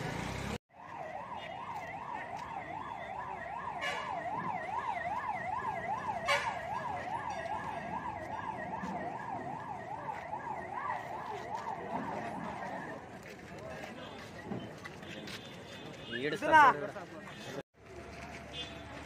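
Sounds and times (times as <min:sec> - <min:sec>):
fire engine siren warbling: 0:00.7 - 0:13.4.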